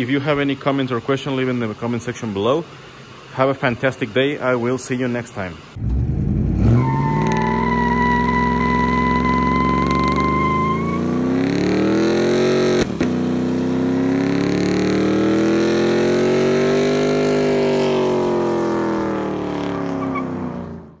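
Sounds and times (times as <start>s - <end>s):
truck engine revving: 5.5s - 21.0s.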